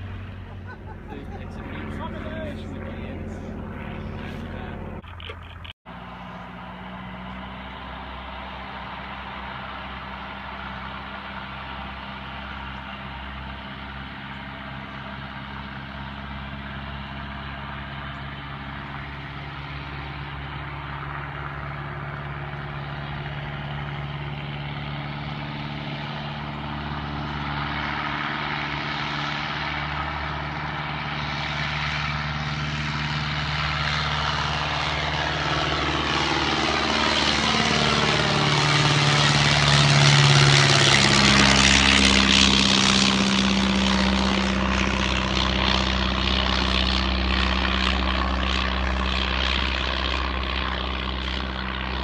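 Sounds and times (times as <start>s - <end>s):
light aircraft engine and propeller: 0.0s - 52.0s.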